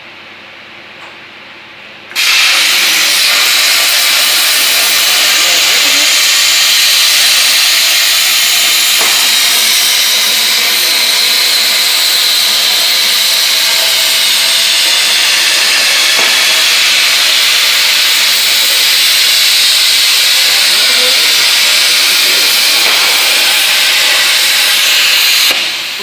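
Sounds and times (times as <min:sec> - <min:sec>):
plasma torch hissing: 0:02.1 - 0:26.0.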